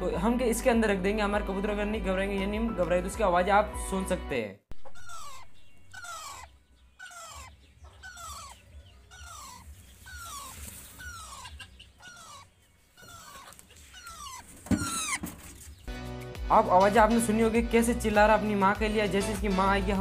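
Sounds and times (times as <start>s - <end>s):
young parakeet crying: 4.8s - 15.6s.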